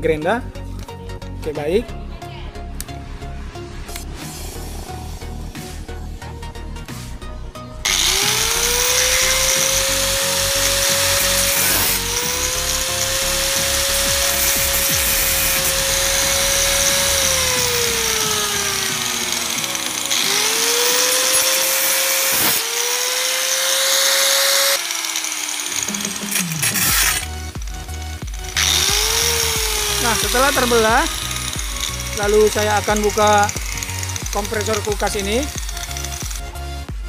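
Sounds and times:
angle grinder cutting steel: 0:07.9 - 0:36.9.

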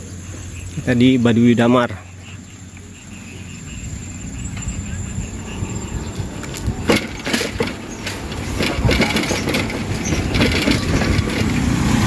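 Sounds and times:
road and wind rumble: 0:00.0 - 0:12.0
bicycle rattles and knocks: 0:04.4 - 0:12.0.

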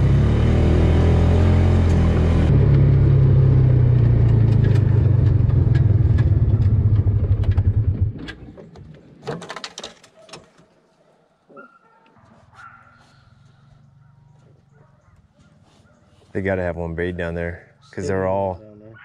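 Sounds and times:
utility vehicle engine running: 0:00.0 - 0:08.7
clicks and knocks: 0:07.4 - 0:10.7.

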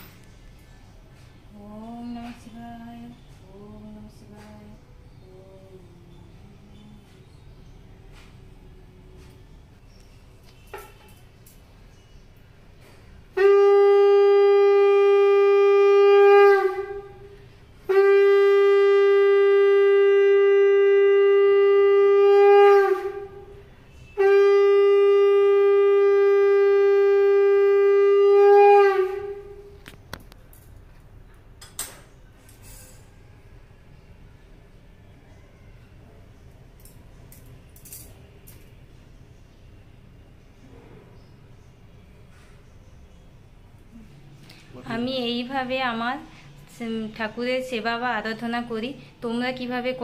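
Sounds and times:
conch shell blasts: 0:13.3 - 0:29.8.

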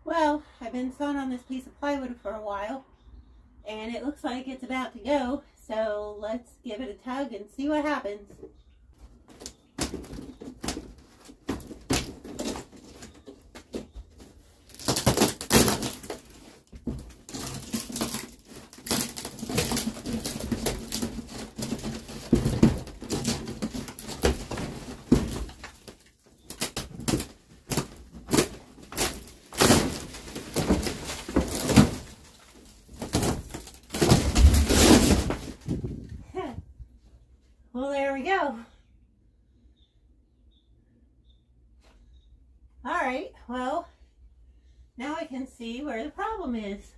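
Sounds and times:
wood cracking and creaking: 0:08.4 - 0:36.2
debris falling: 0:09.3 - 0:36.1.

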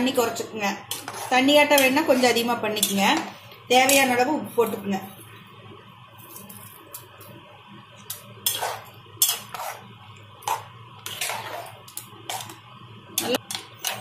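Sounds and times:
metal spatula scraping pot: 0:00.8 - 0:04.2, 0:08.1 - 0:12.6, 0:13.2 - 0:14.0.

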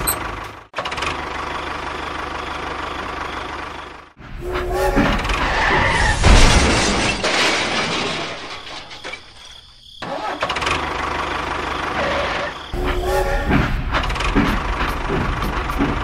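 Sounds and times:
engine running steadily: 0:00.0 - 0:05.4, 0:10.8 - 0:16.0
loud clatter with heavy rumble: 0:04.1 - 0:09.3, 0:12.8 - 0:16.0.

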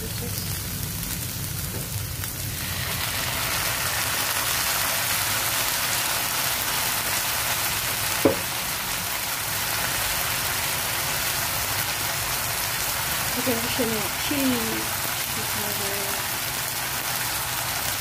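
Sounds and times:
food sizzling in frying pan: 0:00.0 - 0:18.0
sauce poured into hot pan: 0:02.4 - 0:13.4
brief knock: 0:08.2 - 0:08.5.

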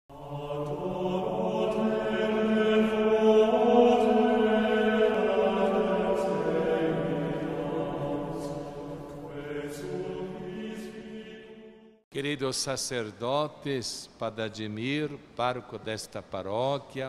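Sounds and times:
slow chant on long notes: 0:00.1 - 0:12.0.

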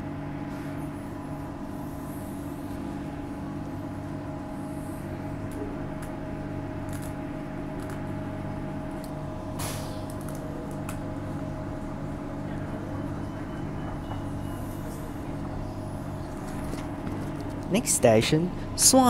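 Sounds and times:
train traction hum and whine: 0:00.0 - 0:19.0
train running noise: 0:11.2 - 0:19.0.

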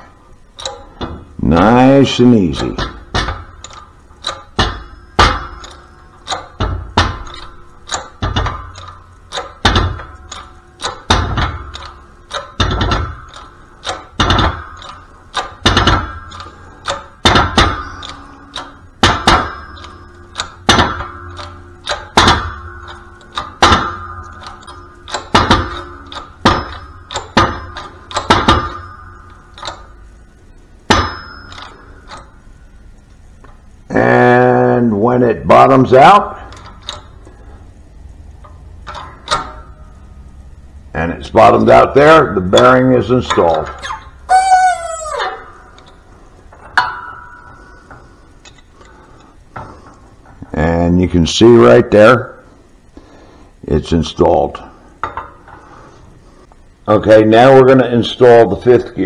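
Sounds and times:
arbor press metallic clunk: 0:00.0 - 0:01.4, 0:02.5 - 0:30.0, 0:38.4 - 0:40.0
metal ringing: 0:00.0 - 0:34.8, 0:36.1 - 0:50.5.

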